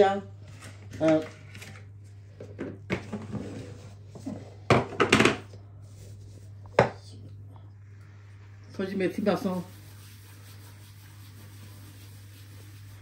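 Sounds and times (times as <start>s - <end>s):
steady low hum: 0.0s - 13.0s
kitchen utensils knocking and clinking: 4.7s - 5.5s.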